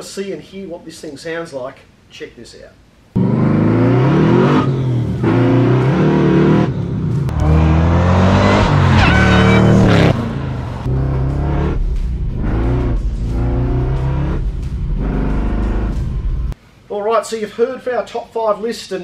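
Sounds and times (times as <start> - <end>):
car engine accelerating hard: 3.2 - 16.6
high supercharger whine: 3.2 - 16.6.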